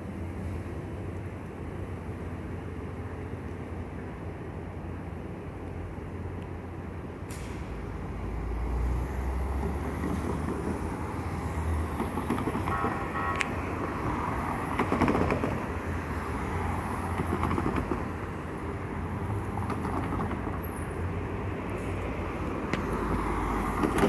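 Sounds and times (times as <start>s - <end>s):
vehicles rumbling past: 5.8s - 24.0s.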